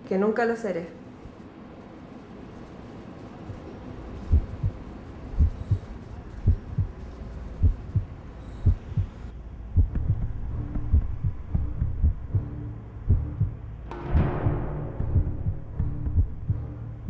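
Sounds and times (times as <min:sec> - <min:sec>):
low steady hum: 0:00.0 - 0:17.0
heartbeat thumps: 0:04.2 - 0:07.0, 0:07.6 - 0:17.0.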